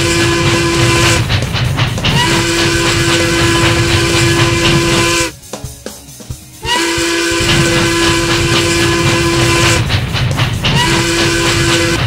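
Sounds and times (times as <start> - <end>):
steam locomotive whistle: 0.0 - 1.3, 2.1 - 5.4, 6.6 - 9.9, 10.7 - 12.0
train running rumble: 0.0 - 12.0.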